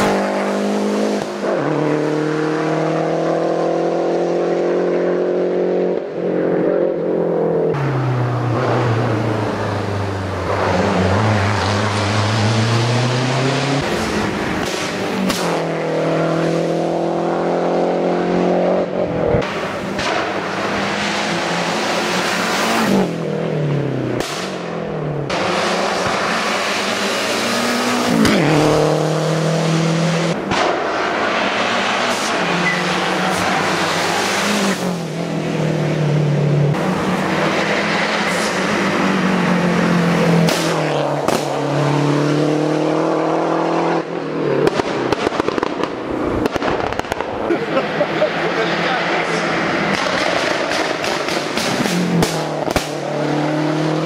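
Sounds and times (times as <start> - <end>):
car engine accelerating hard: 0.0 - 54.0.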